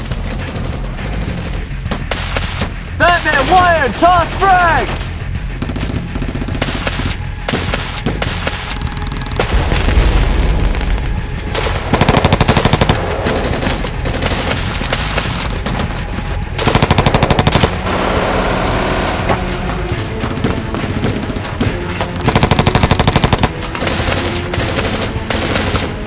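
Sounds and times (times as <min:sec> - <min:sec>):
deep boom: 0:09.4 - 0:11.9
automatic gunfire bursts: 0:11.6 - 0:15.4, 0:16.6 - 0:19.2, 0:20.3 - 0:26.0.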